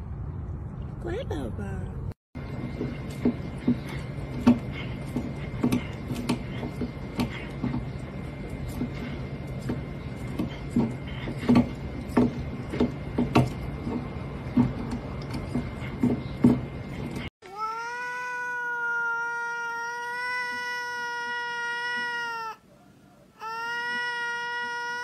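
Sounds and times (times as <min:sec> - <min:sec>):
cat yowling: 0:17.4 - 0:22.6, 0:23.4 - 0:25.0.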